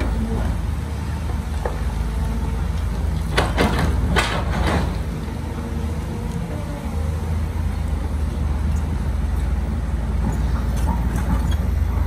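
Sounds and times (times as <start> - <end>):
diesel engine running: 0.0 - 12.0
clattering and clanking: 3.2 - 5.1.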